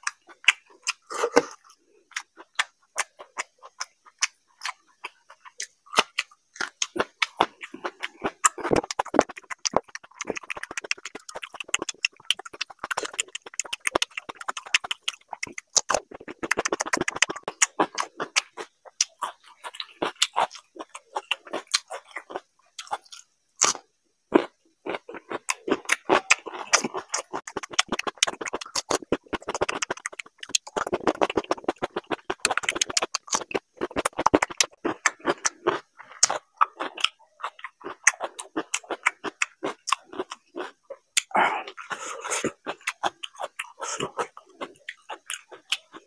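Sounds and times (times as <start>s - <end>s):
crisp crunching of cucumber: 0.0s - 46.0s
wet mouth clicks and lip smacks: 8.5s - 19.2s, 25.9s - 35.2s.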